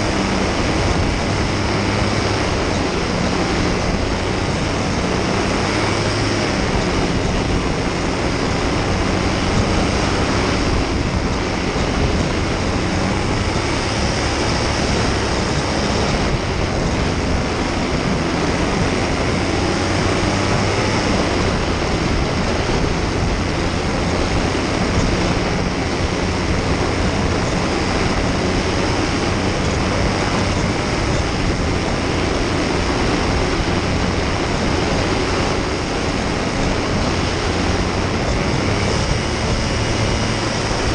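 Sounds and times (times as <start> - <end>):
paramotor engine drone: 0.0 - 40.9
rushing wind noise: 0.0 - 40.9.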